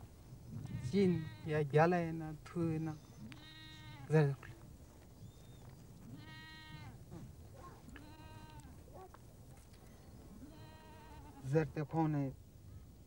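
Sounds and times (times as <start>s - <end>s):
goats and sheep bleating: 3.3s - 4.3s, 6.1s - 8.7s, 10.4s - 11.6s.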